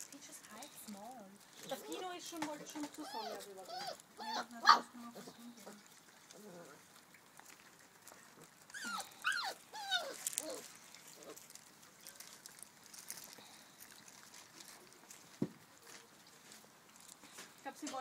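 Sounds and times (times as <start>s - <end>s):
puppies whining: 1.7s - 7.0s, 8.3s - 11.6s.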